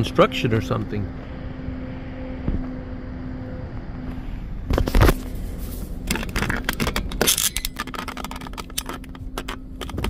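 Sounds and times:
car engine humming: 0.0s - 10.0s
rapid irregular clicks and scrapes: 4.7s - 10.0s.

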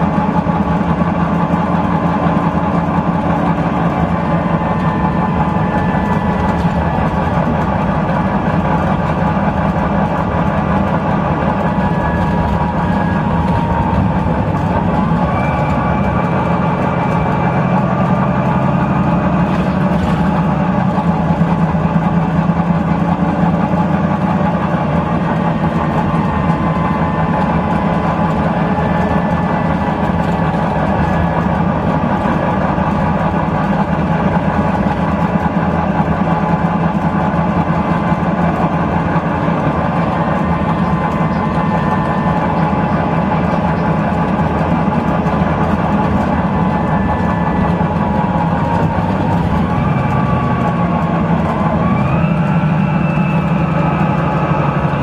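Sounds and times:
bus diesel engine running: 0.0s - 55.0s.

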